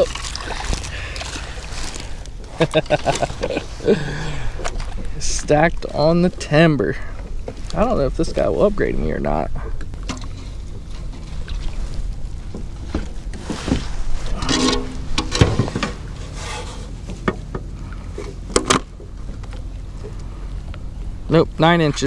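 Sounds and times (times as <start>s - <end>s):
wind rumble on microphone: 0.0s - 16.4s.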